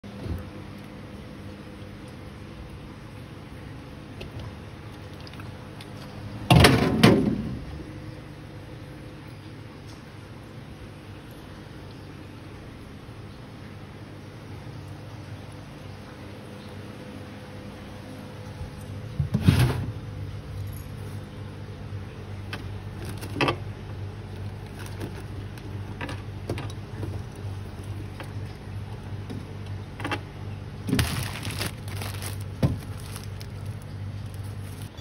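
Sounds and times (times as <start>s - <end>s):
steady low hum: 0.0s - 35.0s
vegetables being handled: 22.9s - 23.6s, 24.3s - 26.0s, 30.8s - 35.0s
plastic drawer clattering: 30.9s - 33.5s.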